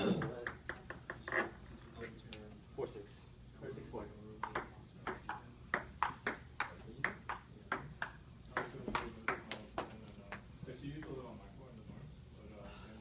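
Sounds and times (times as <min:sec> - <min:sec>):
ping pong ball hitting paddles: 0:00.2 - 0:01.4, 0:04.4 - 0:10.0
ball bouncing on table: 0:04.4 - 0:09.9.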